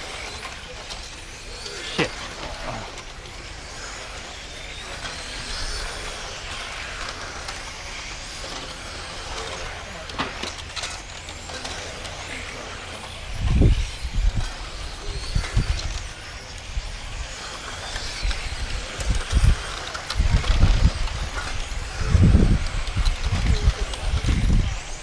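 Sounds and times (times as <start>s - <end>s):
electric toy cars whining: 0.0s - 25.0s
wind rumble on microphone: 13.2s - 17.6s, 18.2s - 25.0s.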